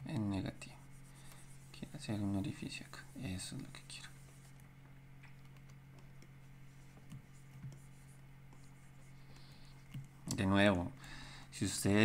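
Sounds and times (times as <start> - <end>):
steady low hum: 0.0 - 12.0
stylus scratching on tablet: 0.2 - 4.6, 5.5 - 10.2.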